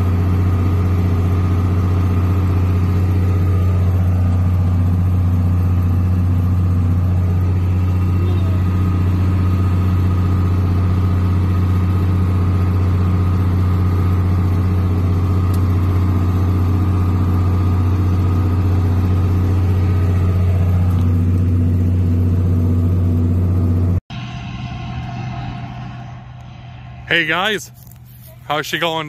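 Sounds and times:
tractor diesel engine drone: 0.0 - 29.0
faint steady whine: 24.1 - 29.0.

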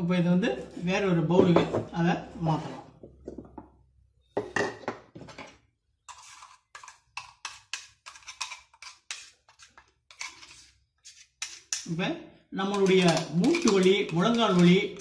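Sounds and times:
metal spoon scraping steel jar: 6.0 - 12.0, 12.6 - 15.0.

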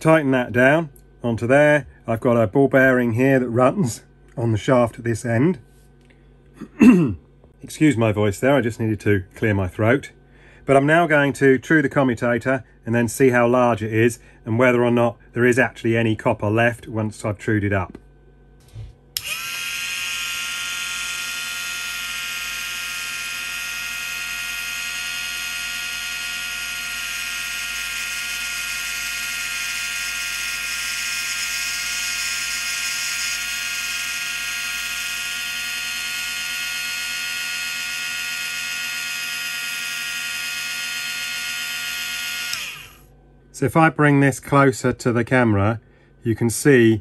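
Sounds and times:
lathe motor whining: 18.6 - 43.1
cutting tool cutting metal: 19.2 - 43.0.

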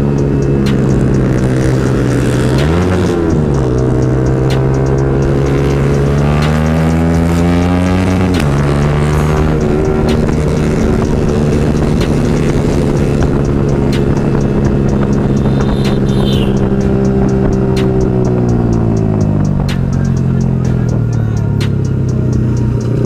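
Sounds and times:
motorcycle engine accelerating: 0.0 - 23.0.

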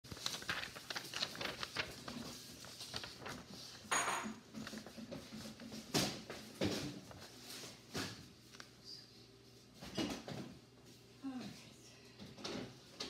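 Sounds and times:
paper rustling and shuffling: 0.0 - 8.8.

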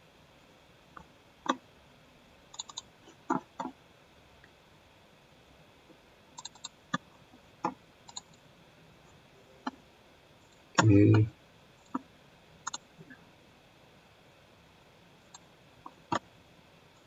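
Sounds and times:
computer mouse clicks: 2.5 - 3.7, 6.4 - 7.0, 7.6 - 8.4, 12.6 - 12.9, 15.3 - 15.5.

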